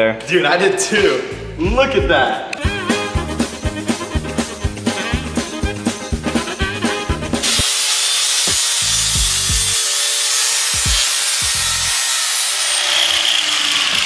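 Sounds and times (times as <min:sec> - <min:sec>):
music with thumping bass beat: 0:01.3 - 0:07.7, 0:08.5 - 0:09.8, 0:10.8 - 0:11.6
power tool grinding steel: 0:07.4 - 0:14.0.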